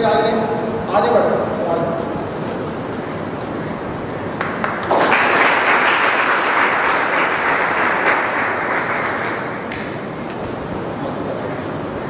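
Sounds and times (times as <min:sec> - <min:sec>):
audience applauding: 0:04.3 - 0:09.9.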